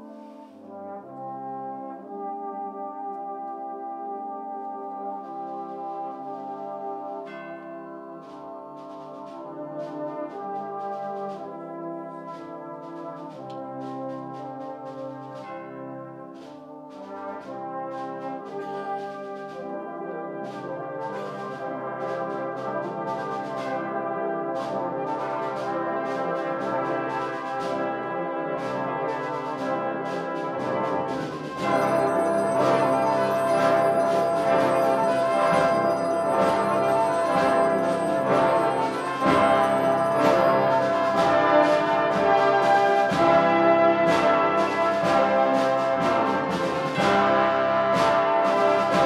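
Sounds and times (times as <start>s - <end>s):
brass band chords: 0.0s - 49.0s
percussion strikes: 20.4s - 49.0s.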